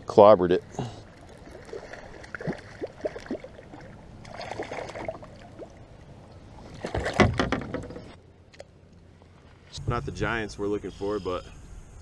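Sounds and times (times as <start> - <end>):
water sloshing: 0.6 - 9.7
fish splashing in water: 1.1 - 5.8
knocks against kayak hull: 7.0 - 8.1.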